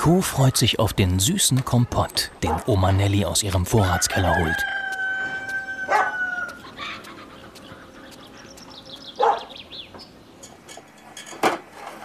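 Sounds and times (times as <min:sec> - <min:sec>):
small birds chirping: 0:01.6 - 0:10.8
dog barking: 0:02.4 - 0:02.7, 0:05.9 - 0:06.2, 0:09.2 - 0:09.6.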